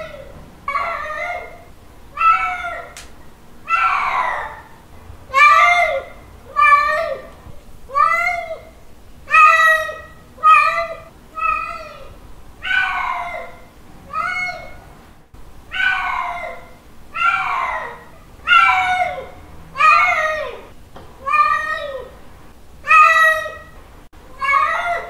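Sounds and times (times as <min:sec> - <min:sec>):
cat meowing loudly: 0:00.0 - 0:03.0, 0:03.7 - 0:04.7, 0:09.3 - 0:14.8, 0:15.7 - 0:22.1, 0:24.3 - 0:25.0.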